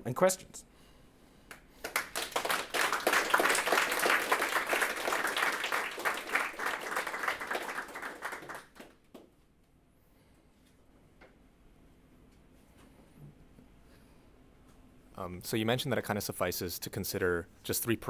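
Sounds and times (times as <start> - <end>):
audience applauding: 1.8 - 9.2.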